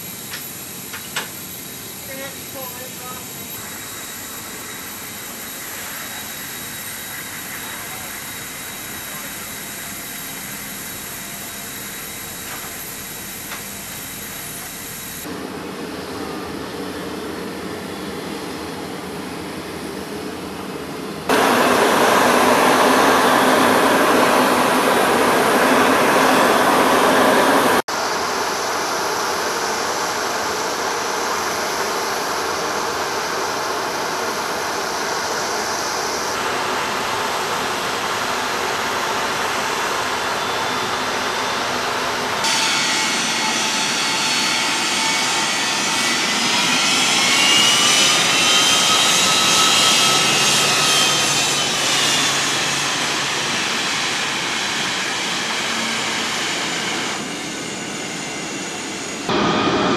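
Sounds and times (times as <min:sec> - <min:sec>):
jet engines whining: 0:00.0 - 0:59.9
steady rush of engine noise: 0:12.1 - 0:42.5.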